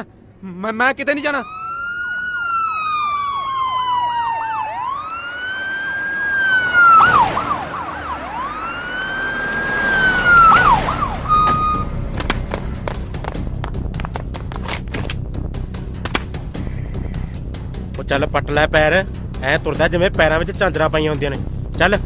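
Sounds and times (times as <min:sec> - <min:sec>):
police siren wailing: 0:01.2 - 0:12.1.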